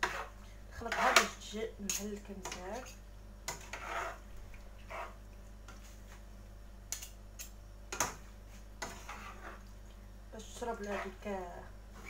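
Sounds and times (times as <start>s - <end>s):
fork clicking and scraping on pan: 0.9s - 4.2s, 8.8s - 9.7s, 10.8s - 11.2s.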